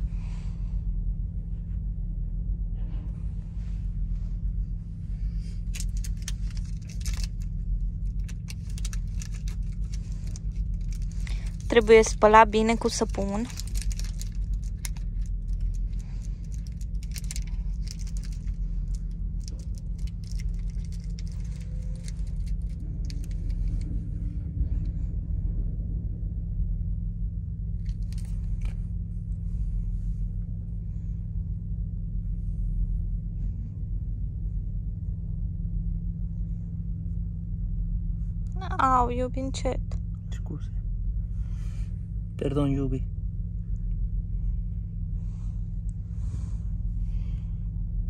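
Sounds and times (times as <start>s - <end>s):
idling vehicle rumble: 0.0s - 48.0s
small items rustling and clicking: 5.6s - 24.0s, 27.8s - 28.8s.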